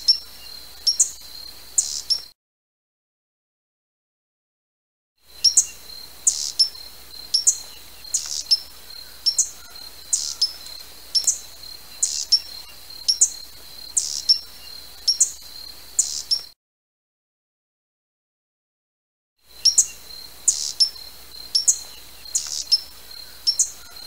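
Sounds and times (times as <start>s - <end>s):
hummingbird chip calls: 0.0s - 2.3s, 5.4s - 16.5s, 19.6s - 24.0s
faint steady high whine: 5.2s - 16.6s, 19.4s - 24.0s.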